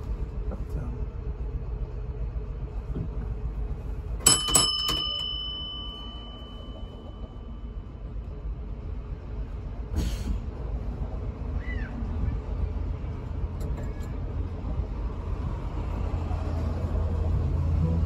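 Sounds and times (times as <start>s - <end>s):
tram rumbling: 0.0s - 18.0s
tram bell ringing: 4.2s - 8.7s.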